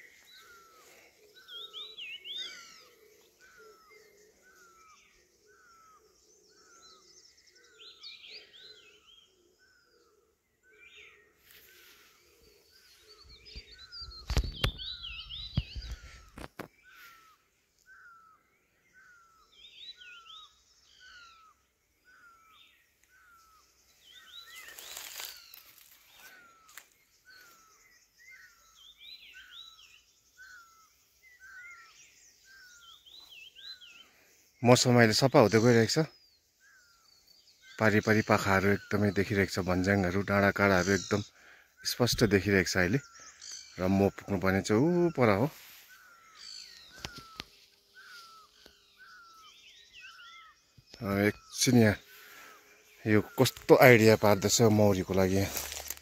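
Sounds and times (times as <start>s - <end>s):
birds warbling: 0.0s - 56.0s
bird falling chirp: 13.2s - 18.3s, 22.9s - 27.7s, 43.0s - 52.4s.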